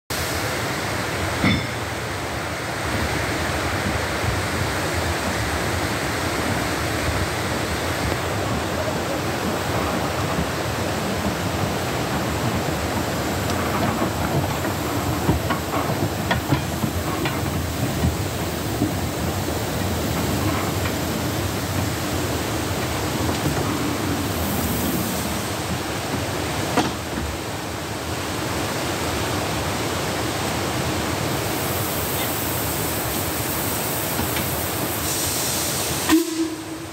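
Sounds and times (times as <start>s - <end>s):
steam hissing from locomotive: 0.1s - 36.9s.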